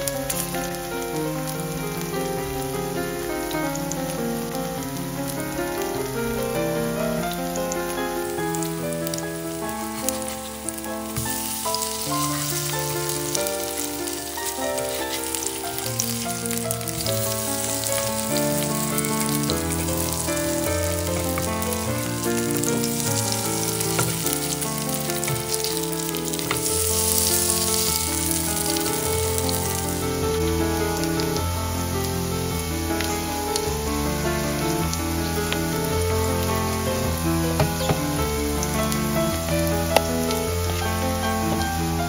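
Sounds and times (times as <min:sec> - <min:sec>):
pancakes sizzling in hot oil: 0:09.9 - 0:29.6.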